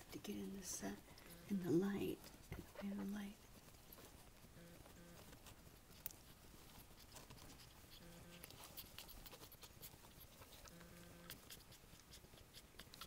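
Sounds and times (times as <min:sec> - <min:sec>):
puppies suckling clicks: 0:05.2 - 0:13.0.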